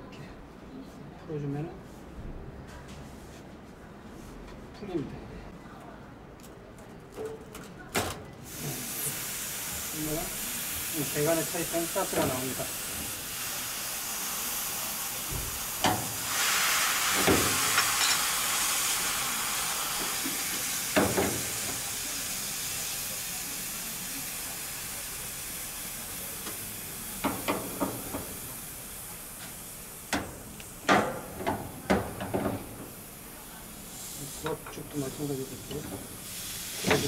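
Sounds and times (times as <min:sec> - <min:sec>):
gas hissing from fitting: 0:08.5 - 0:37.0.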